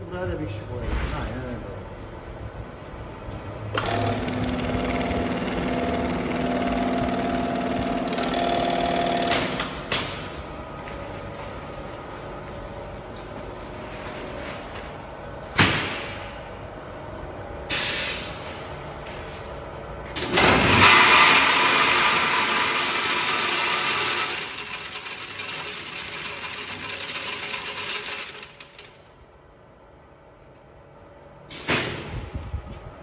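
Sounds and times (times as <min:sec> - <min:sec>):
bagging machine humming: 0:03.6 - 0:15.4, 0:19.6 - 0:29.0
sharp machine clicks: 0:03.8 - 0:10.2.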